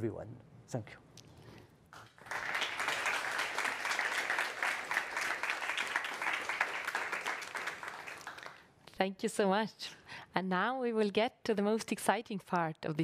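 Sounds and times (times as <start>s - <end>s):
audience applauding: 1.9s - 8.6s.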